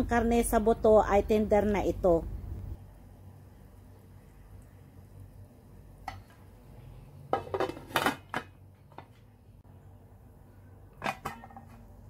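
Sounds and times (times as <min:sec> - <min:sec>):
metal pot lid clattering: 0:11.0 - 0:11.8.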